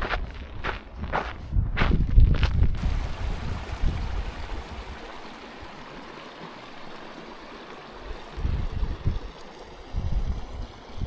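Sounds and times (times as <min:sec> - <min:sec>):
mountain stream rushing: 0:02.8 - 0:11.0.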